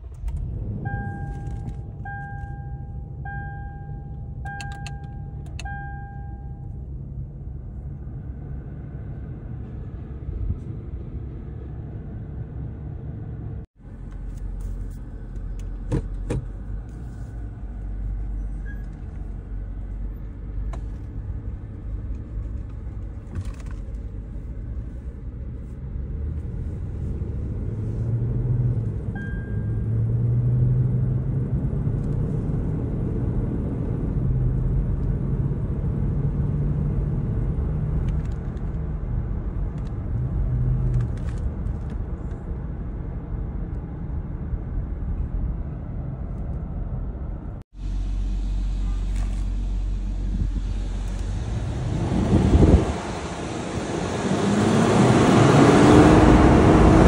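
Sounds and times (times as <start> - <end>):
engine and road noise in car cabin: 0.0 - 57.0
humming tone: 0.4 - 6.9.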